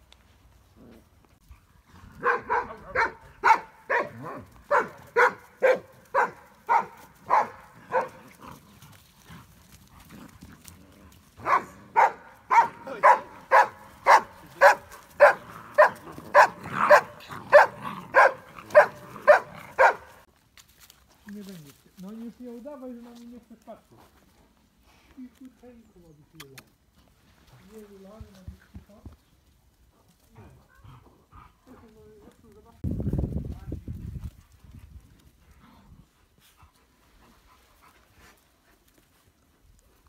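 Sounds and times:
puppy barking: 2.2s - 8.2s, 11.4s - 20.3s.

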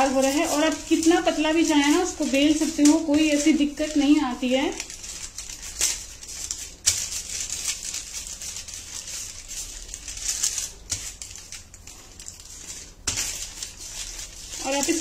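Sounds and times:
paper rustling and crinkling: 0.0s - 15.0s.

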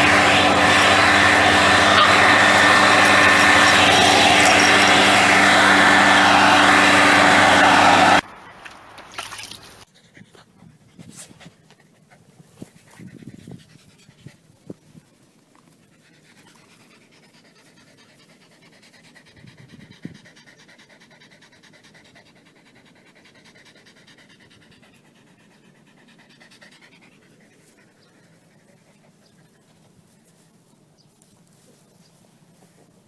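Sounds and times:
dog panting: 9.9s - 30.4s.

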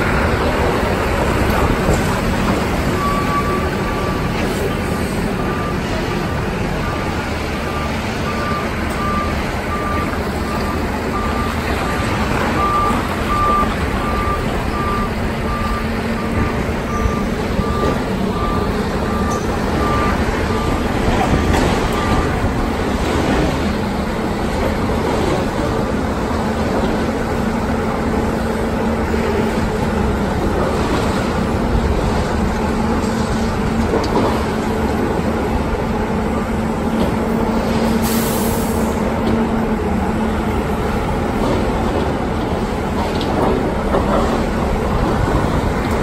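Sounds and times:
heavy diesel machinery running: 0.0s - 46.0s.

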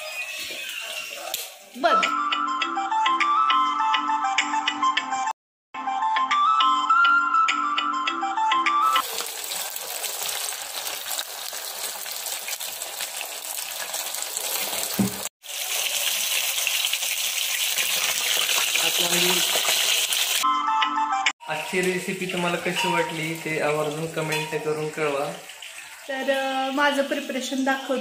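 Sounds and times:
fish sizzling in hot oil: 9.0s - 20.4s.

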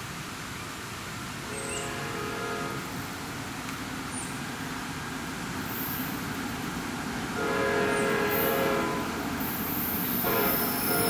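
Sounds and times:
train rumbling: 0.9s - 11.0s
train air horn blast: 1.4s - 3.2s, 7.4s - 9.2s, 10.2s - 11.0s.

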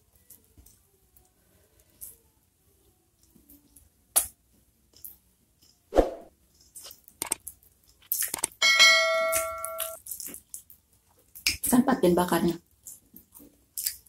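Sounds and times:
whoosh sound effect: 5.9s - 6.3s
wet mouth clicks and smacks: 6.6s - 8.6s, 11.4s - 11.7s, 12.8s - 14.0s
ringing chime sound effect: 8.6s - 10.0s.

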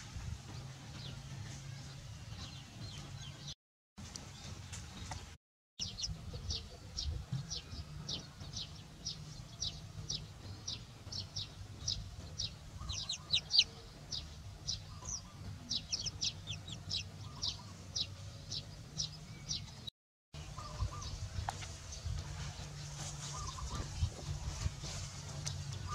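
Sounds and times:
chicks peeping: 5.8s - 19.8s.

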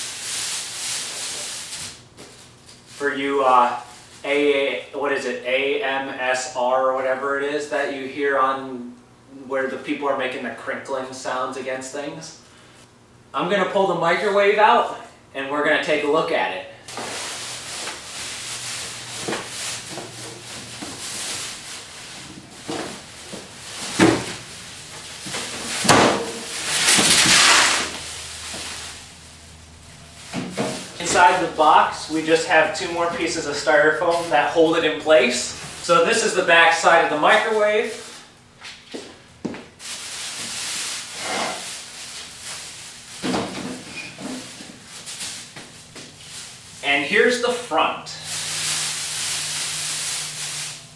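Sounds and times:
plastic wrap rustling: 0.0s - 4.2s, 16.9s - 38.2s, 39.7s - 46.8s, 48.2s - 50.9s
appliance scraping cardboard and foam: 16.9s - 28.8s.

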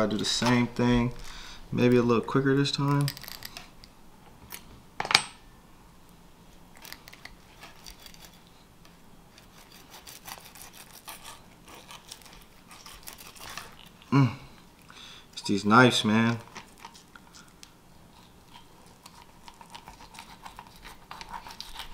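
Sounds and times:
knife scraping fish flesh: 9.3s - 14.0s, 18.1s - 21.9s.

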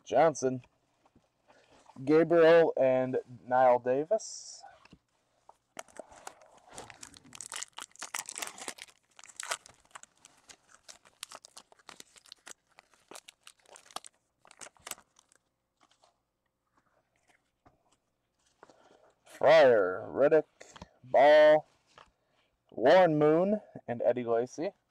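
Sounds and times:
foil wrapper crinkling: 5.8s - 16.1s.

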